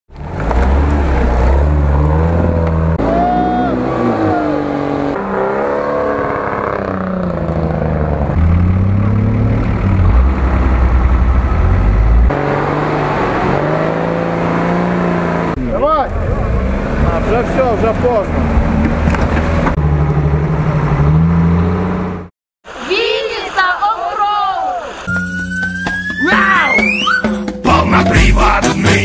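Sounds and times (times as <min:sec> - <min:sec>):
off-road engines revving: 0:00.1 - 0:22.3.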